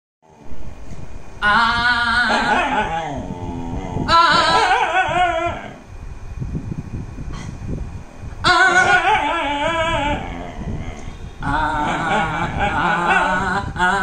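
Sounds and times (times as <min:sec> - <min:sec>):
dog howling: 0:01.4 - 0:05.8, 0:08.4 - 0:14.0.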